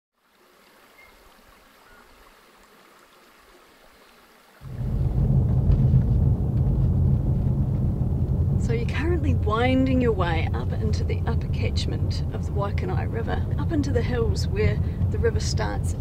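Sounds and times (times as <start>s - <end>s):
vehicle road and engine rumble: 4.7s - 16.0s.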